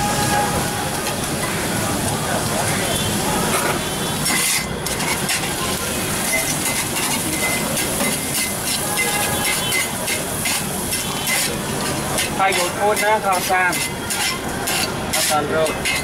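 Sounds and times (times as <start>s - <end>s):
food sizzling on a griddle: 0.0s - 16.0s
metal spatula scraping and chopping: 3.5s - 16.0s.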